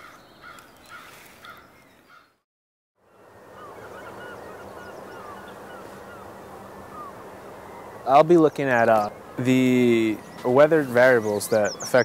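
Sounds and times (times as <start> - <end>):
birds calling: 0.0 - 2.4, 3.0 - 12.0
steady background hiss: 3.1 - 12.0.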